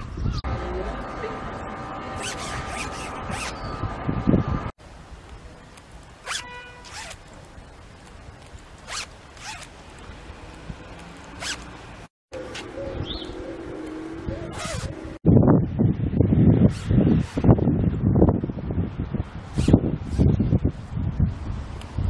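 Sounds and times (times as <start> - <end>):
zipper being pulled: 2.2 - 3.6, 6.2 - 7.2, 8.8 - 9.7, 11.0 - 11.8, 14.5 - 15.0, 19.6 - 20.2.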